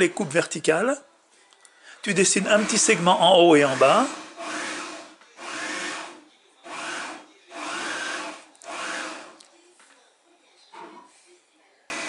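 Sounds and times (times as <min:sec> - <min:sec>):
pencil scratching on paper: 0:02.4 - 0:09.4.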